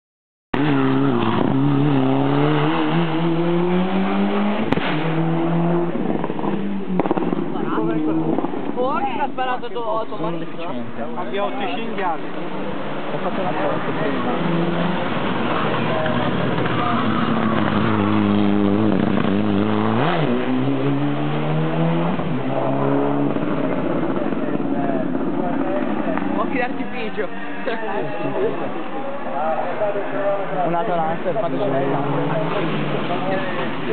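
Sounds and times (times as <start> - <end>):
turbocharged car engine revving: 0.6 - 8.8, 12.4 - 26.9.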